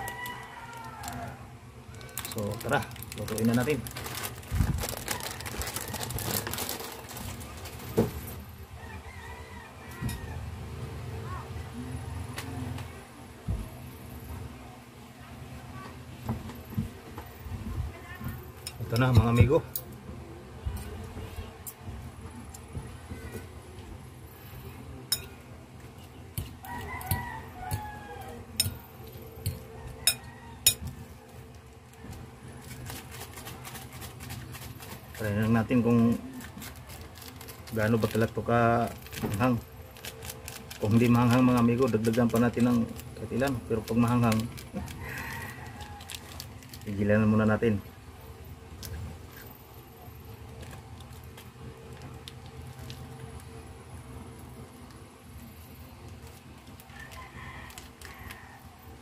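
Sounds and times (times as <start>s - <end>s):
rooster crowing: 0.0s - 1.6s, 4.9s - 6.4s, 8.7s - 10.6s, 26.4s - 31.2s, 44.7s - 46.5s, 56.8s - 59.0s
handling noises: 0.0s - 8.5s, 25.1s - 47.0s
plastic packet crinkling: 1.9s - 8.0s, 32.6s - 47.1s, 50.5s - 53.6s, 56.0s - 58.4s.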